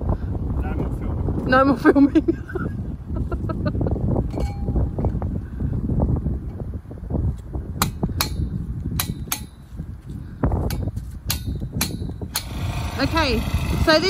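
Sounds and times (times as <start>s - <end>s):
hand tool striking metal post: 4.3s - 4.9s, 7.8s - 9.8s, 10.6s - 12.9s.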